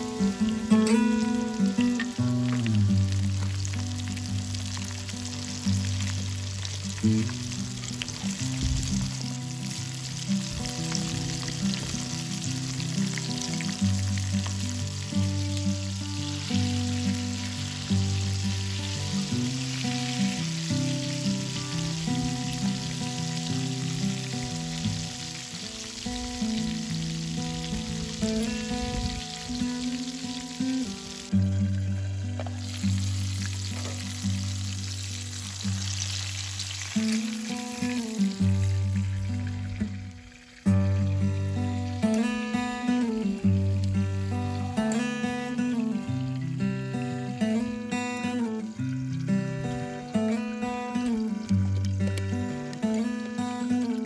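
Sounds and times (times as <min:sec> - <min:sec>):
oil sizzling and crackling: 0:00.0 - 0:54.0.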